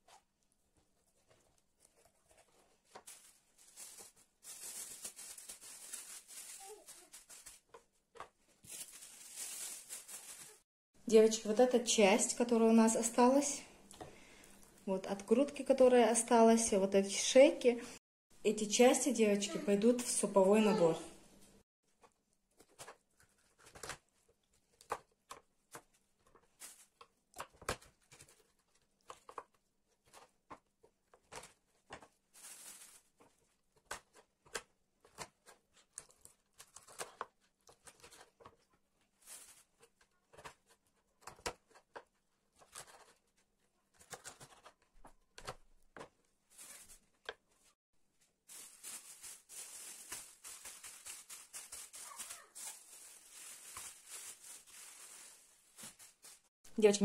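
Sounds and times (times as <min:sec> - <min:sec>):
plastic bag rustling: 0:01.0 - 0:10.7, 0:32.0 - 0:33.6, 0:39.1 - 0:39.9, 0:46.4 - 0:56.5.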